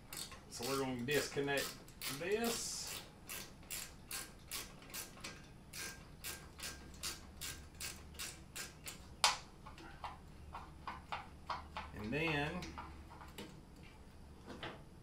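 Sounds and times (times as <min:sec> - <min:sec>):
hand ratchet clicking: 0:00.0 - 0:09.4.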